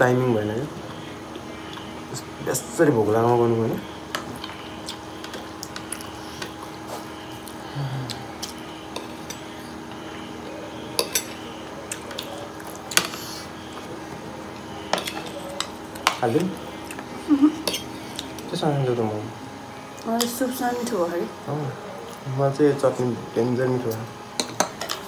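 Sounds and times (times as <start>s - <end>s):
steady low hum: 0.0s - 25.0s
cutlery clinking on plates: 10.9s - 11.4s, 14.9s - 16.2s, 17.6s - 17.9s, 24.4s - 25.0s.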